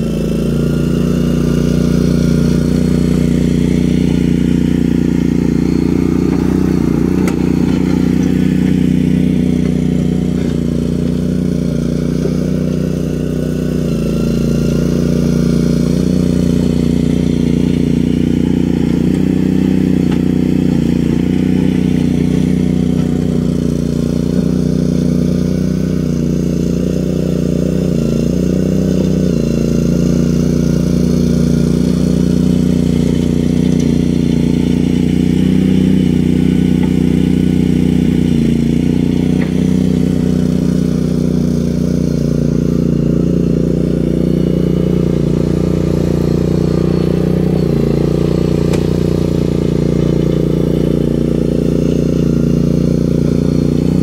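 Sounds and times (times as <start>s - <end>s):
skid steer engine running: 0.0s - 54.0s.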